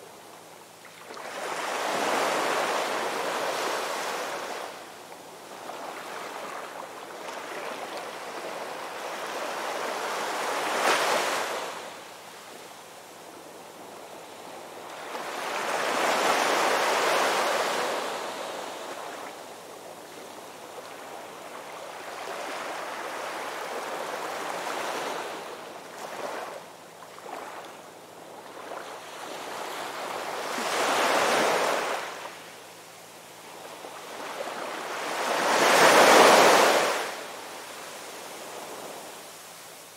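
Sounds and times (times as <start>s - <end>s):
ocean waves breaking on shore: 1.0s - 4.8s, 5.4s - 12.0s, 14.8s - 19.4s, 20.2s - 32.4s, 33.5s - 39.9s.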